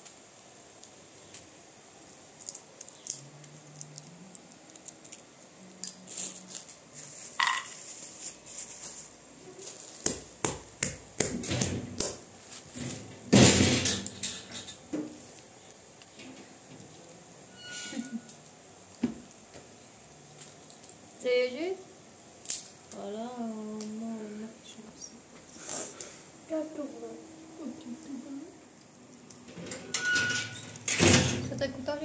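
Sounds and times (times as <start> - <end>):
walnut shells cracking: 0.0 - 7.8, 22.4 - 23.0
plastic bag crinkling: 0.8 - 10.4.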